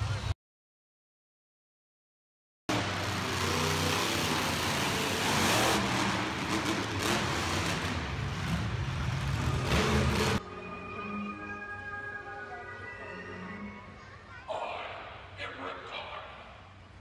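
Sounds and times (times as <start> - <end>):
monster truck engines revving: 2.7 - 10.4.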